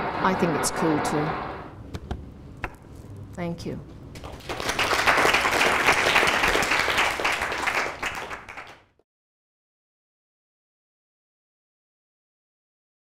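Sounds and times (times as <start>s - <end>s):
audience applauding: 4.2s - 9.0s.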